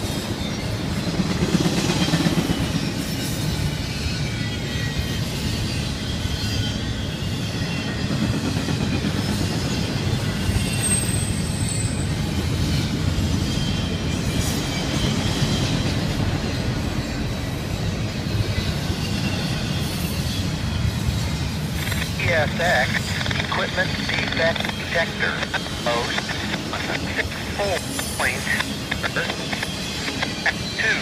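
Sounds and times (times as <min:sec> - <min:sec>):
train wheels rumbling on rail: 0:00.0 - 0:31.0.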